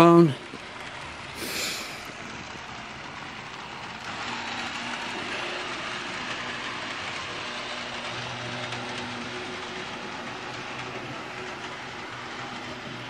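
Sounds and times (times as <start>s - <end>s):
model train running on track: 0.0s - 13.0s
short hiss: 1.4s - 2.1s.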